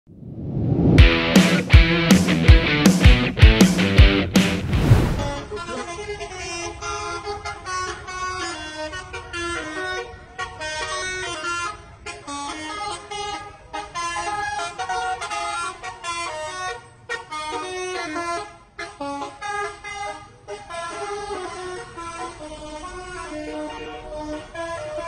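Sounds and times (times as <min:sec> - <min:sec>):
multi-tone air horns playing a tune: 0:05.4 - 0:25.0.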